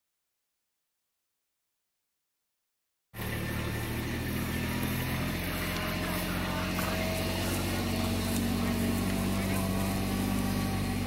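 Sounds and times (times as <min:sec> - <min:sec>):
low motor rumble: 0:03.2 - 0:11.0.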